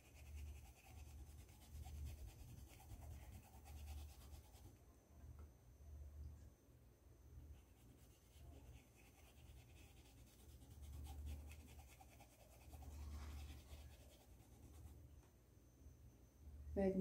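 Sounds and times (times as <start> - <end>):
paintbrush scratching on fabric: 0.0 - 4.7, 7.6 - 15.0.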